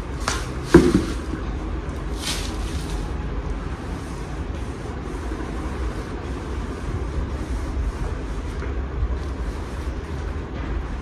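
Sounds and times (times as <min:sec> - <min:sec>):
plastic rustling: 0:01.9 - 0:03.2.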